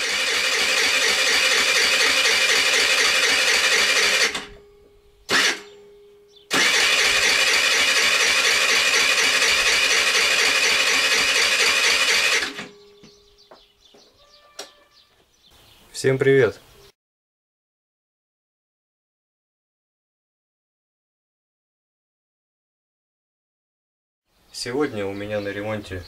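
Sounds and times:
moped starter cranking: 0.0s - 4.7s, 5.3s - 5.8s, 6.5s - 13.1s.

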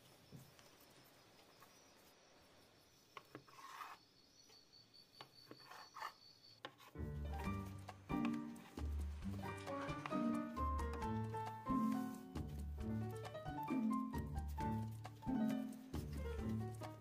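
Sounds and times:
music: 7.0s - 17.0s.

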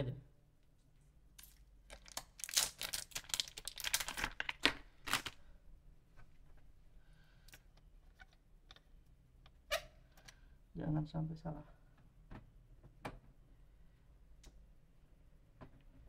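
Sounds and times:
plastic packaging crinkling and tearing: 1.4s - 5.5s.

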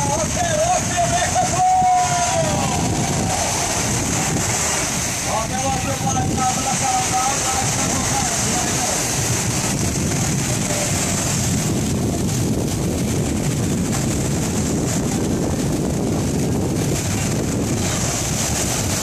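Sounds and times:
small waves breaking on beach: 0.0s - 19.0s
wind rumbling on microphone: 0.0s - 19.0s.

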